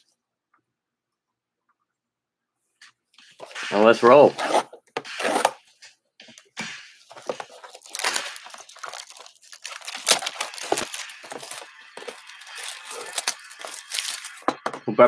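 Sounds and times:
shrink wrap crinkling and tearing: 7.0 - 14.6.

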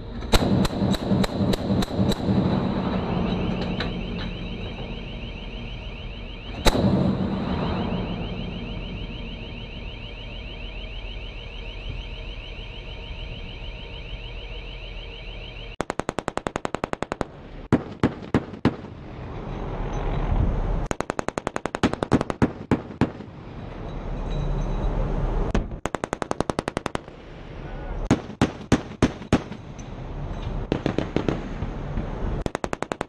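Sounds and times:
low rushing noise: 0.0 - 14.0
automatic gun firing: 0.3 - 2.7, 6.6 - 7.6, 15.8 - 18.9, 20.9 - 23.3, 25.6 - 27.1, 30.7 - 31.6, 32.4 - 33.0
rapidly pulsing high tone: 0.6 - 15.8.

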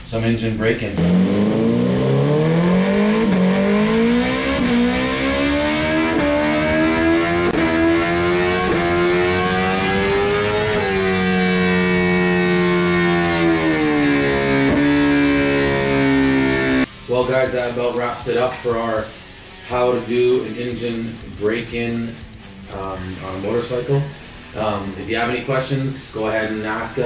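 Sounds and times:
motorcycle engine revving: 0.8 - 16.9.

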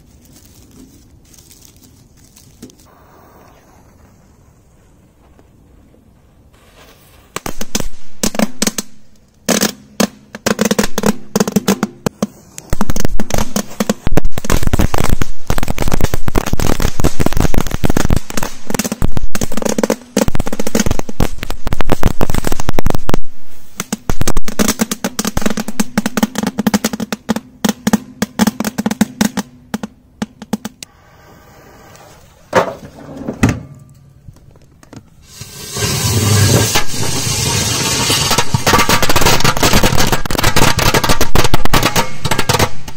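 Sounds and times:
firecracker bangs and crackles: 6.5 - 30.9, 35.2 - 42.9.

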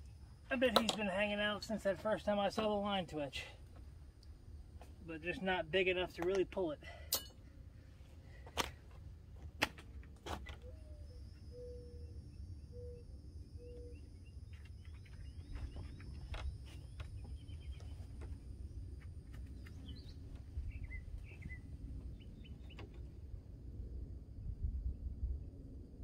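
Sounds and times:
birds chirping and calling: 10.5 - 18.3, 19.5 - 23.0
steady low rumble: 10.8 - 26.0.

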